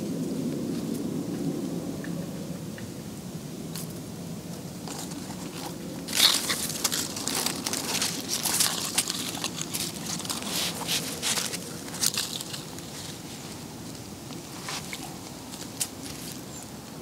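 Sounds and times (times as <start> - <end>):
low background noise: 0.0 - 17.0
rawhide crackling and crinkling: 4.5 - 16.7.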